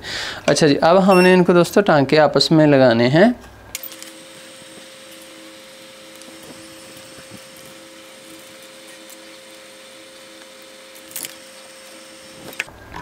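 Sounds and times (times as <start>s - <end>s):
small motor humming: 3.8s - 12.7s.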